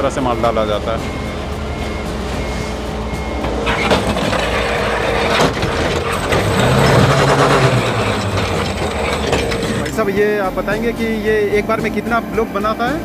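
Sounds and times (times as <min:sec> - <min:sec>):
dumper engine running: 0:00.0 - 0:13.0
sand and gravel pouring rattling: 0:03.8 - 0:10.2.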